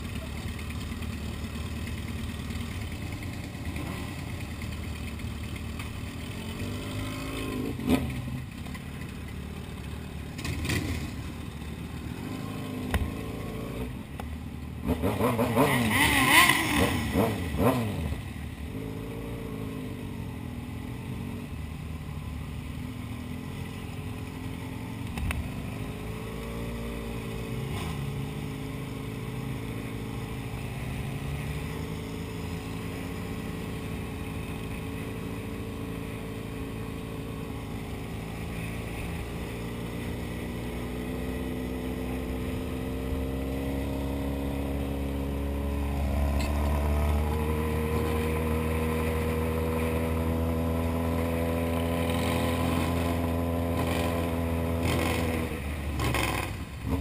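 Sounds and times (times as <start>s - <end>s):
motorcycle engine revving: 0.0s - 21.8s, 22.7s - 57.0s.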